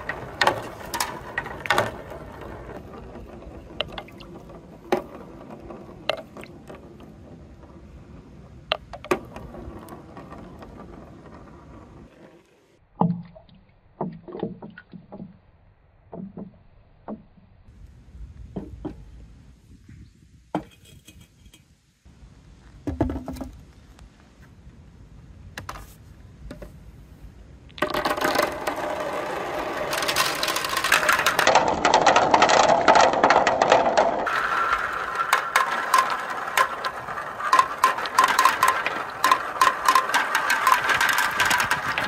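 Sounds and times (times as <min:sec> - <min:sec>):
scattered knocks and clicks: 0:00.0 - 0:07.6, 0:27.8 - 0:42.0
plastic balls rattling down slide: 0:00.0 - 0:12.7, 0:27.7 - 0:42.0.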